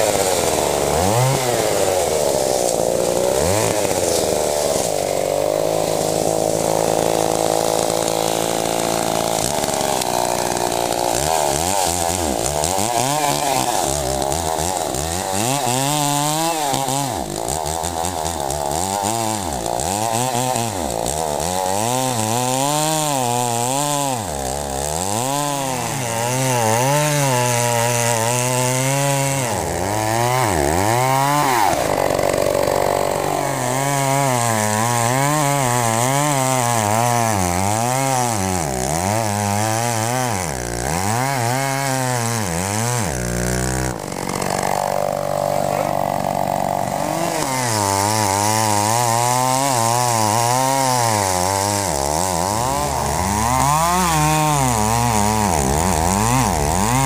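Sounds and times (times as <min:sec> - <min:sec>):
chainsaw cutting tree trunk: 0:00.0 - 0:57.0.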